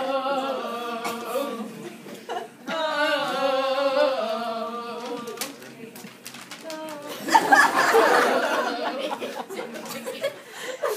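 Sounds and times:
voices singing long held notes: 0.0s - 2.0s, 2.6s - 5.5s.

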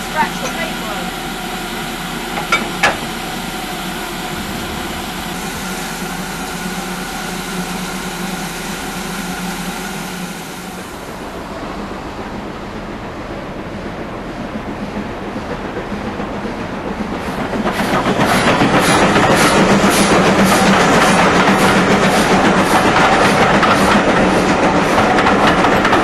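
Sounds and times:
steam locomotive hissing: 0.0s - 26.0s
sharp metallic clanks: 2.4s - 3.1s.

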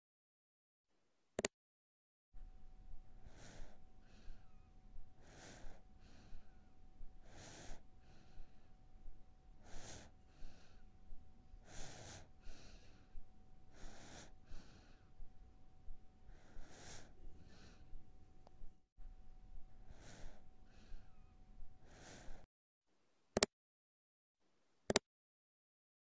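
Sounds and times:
cat breathing: 2.4s - 22.5s.

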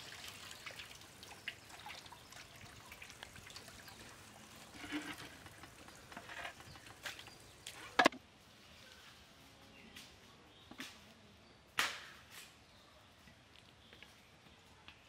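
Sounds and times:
water splashing: 0.0s - 8.0s.

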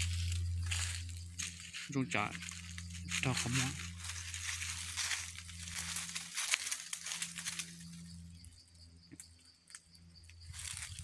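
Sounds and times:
leaves and twigs rustling: 0.0s - 11.0s
twigs snapping: 3.8s - 7.9s.

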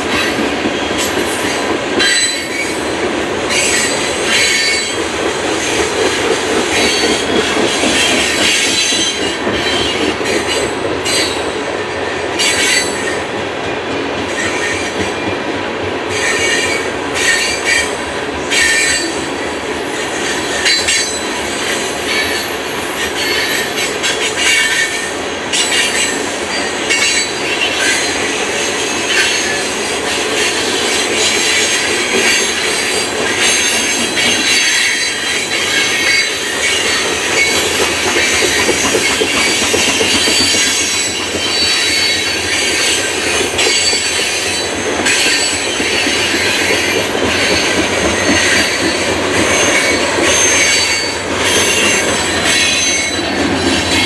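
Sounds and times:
train wheels rumbling on rails: 0.0s - 54.0s
wheels clicking over rail joints: 29.2s - 54.0s
high-pitched wheel squeal: 38.2s - 54.0s.

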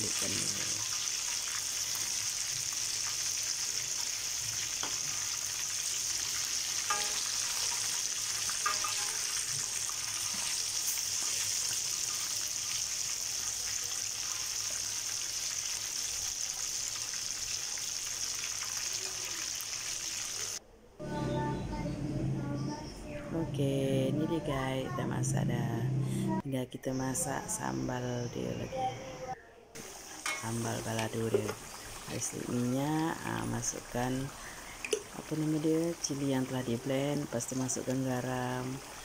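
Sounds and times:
chicken deep-frying in oil: 0.0s - 20.6s, 29.8s - 39.0s.

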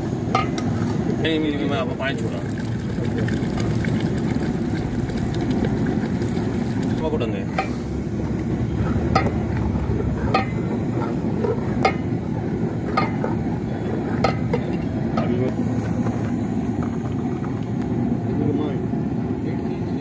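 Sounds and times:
steady low rumble: 0.0s - 20.0s
ladle clinking against pot: 0.4s - 0.7s, 7.5s - 7.8s, 10.3s - 12.2s, 12.8s - 15.4s.

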